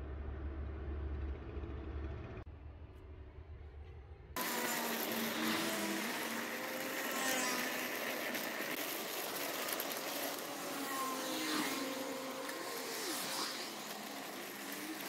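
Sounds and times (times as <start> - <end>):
passing cars: 4.4 - 15.0
vehicle passing: 4.4 - 15.0.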